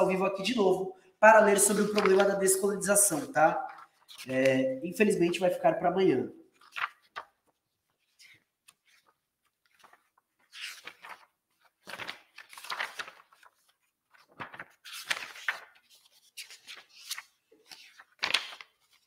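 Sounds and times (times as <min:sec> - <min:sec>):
rustling and handling noises: 0:06.6 - 0:19.0.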